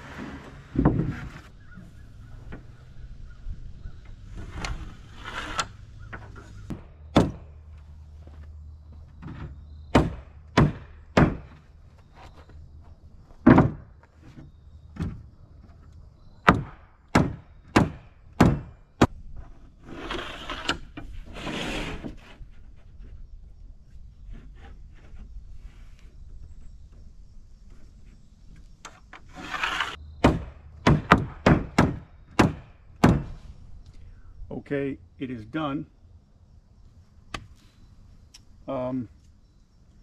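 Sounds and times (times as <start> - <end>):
scraping: 4.1 - 6.8, 19.4 - 23.3, 29.2 - 30.0.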